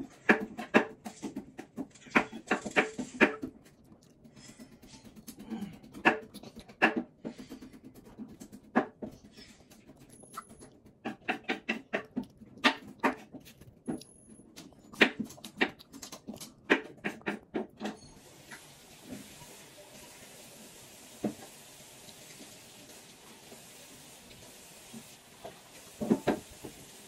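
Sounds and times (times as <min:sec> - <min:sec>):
child's mouth smacking and sucking: 0:14.6 - 0:17.4.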